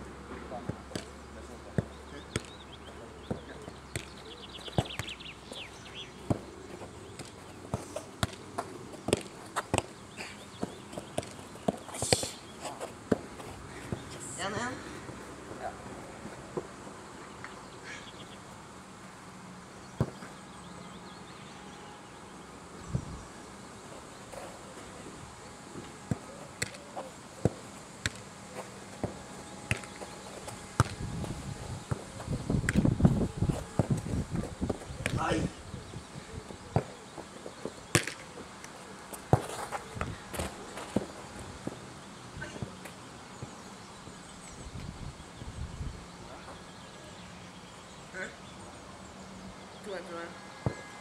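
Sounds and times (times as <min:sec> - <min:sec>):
football being kicked: 0:03.2 - 0:05.3, 0:06.2 - 0:06.5, 0:08.2 - 0:09.9, 0:29.0 - 0:32.0, 0:37.9 - 0:38.2
football kick thuds: 0:29.0 - 0:35.4.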